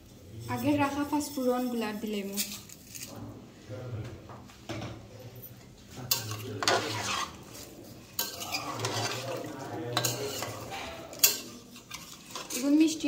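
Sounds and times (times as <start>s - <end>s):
utensil scraping a pot: 6.1s - 13.0s.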